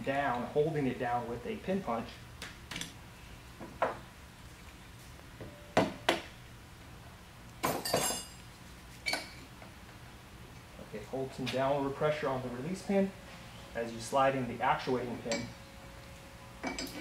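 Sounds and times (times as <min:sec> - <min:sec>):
metal pins clinking on metal housing: 0:15.2 - 0:15.6, 0:16.6 - 0:17.0.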